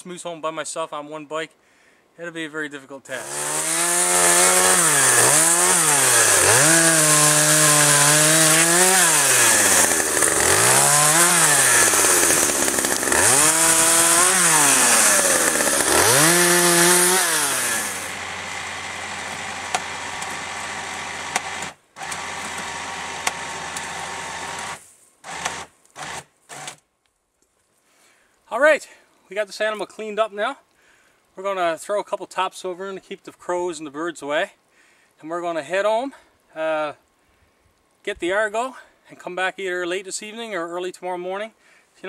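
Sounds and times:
chainsaw revving and idling: 0:03.1 - 0:26.8.

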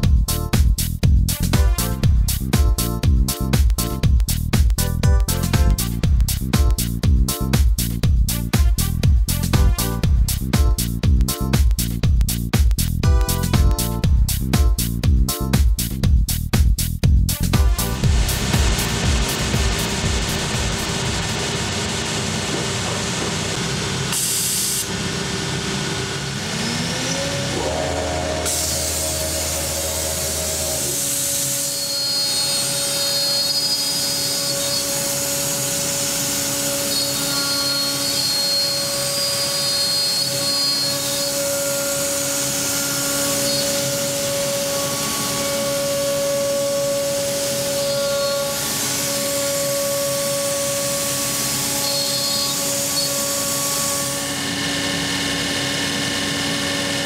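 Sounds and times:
router cutting hiss: 0:18.2 - 0:57.0
router spindle whine: 0:19.3 - 0:57.0.

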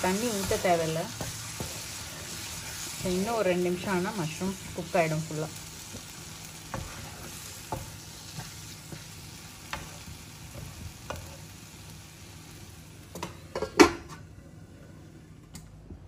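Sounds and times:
masala sizzling in a pan: 0:00.0 - 0:15.1
spatula tapping and scraping: 0:00.1 - 0:03.2, 0:05.9 - 0:11.5.

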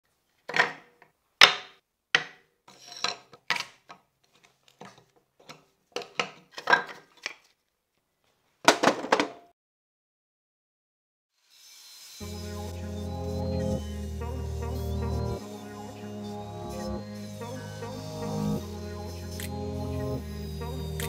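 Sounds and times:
wood pieces clattering on tabletop: 0:00.5 - 0:07.4.

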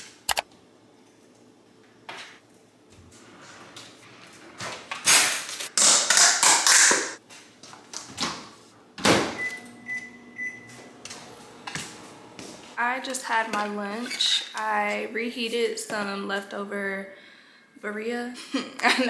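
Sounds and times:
microwave humming: 0:08.8 - 0:12.8
keypad beeps: 0:09.4 - 0:10.7.

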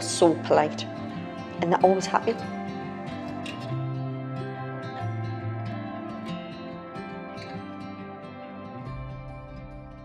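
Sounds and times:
slow instrumental music: 0:00.0 - 0:10.0.

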